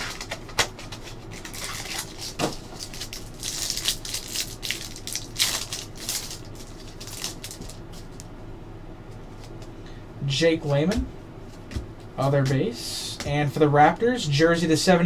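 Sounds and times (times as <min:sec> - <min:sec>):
plastic wrapper crinkling and tearing: 0:00.0 - 0:08.2.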